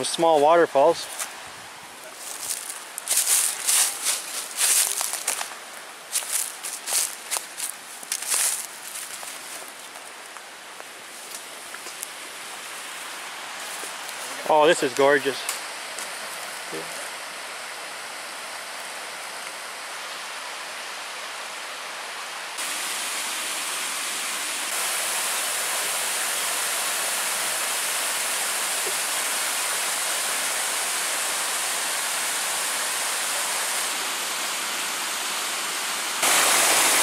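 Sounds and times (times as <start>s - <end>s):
river rushing over rocks: 24.6s - 37.0s.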